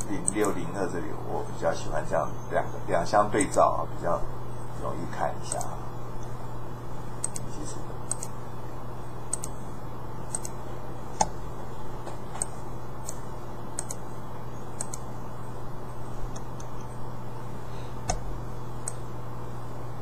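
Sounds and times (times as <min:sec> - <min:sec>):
computer mouse clicks: 0:00.0 - 0:00.6, 0:05.5 - 0:05.7, 0:07.2 - 0:08.3, 0:09.3 - 0:09.6, 0:10.3 - 0:10.6, 0:11.2 - 0:11.4, 0:12.4 - 0:14.0, 0:14.8 - 0:15.1, 0:18.8 - 0:19.0
low electrical hum: 0:00.0 - 0:20.0.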